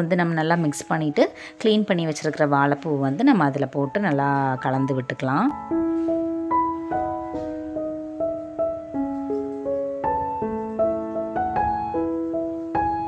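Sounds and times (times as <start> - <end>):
gentle piano melody: 0.0 - 13.0.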